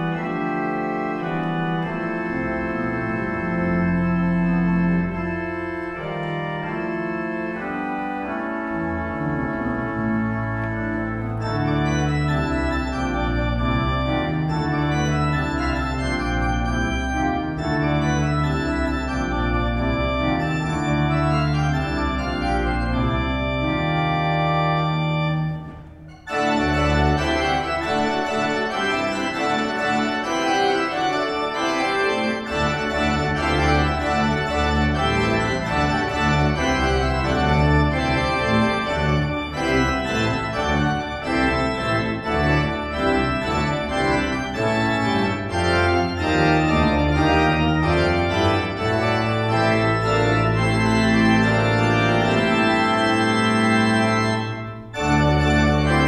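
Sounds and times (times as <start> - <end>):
church organ playing: 0.0 - 56.0.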